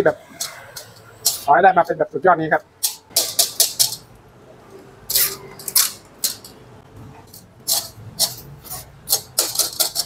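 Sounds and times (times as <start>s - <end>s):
metal ladle scraping in sieve: 0.0s - 1.5s, 5.1s - 6.6s, 7.2s - 10.0s.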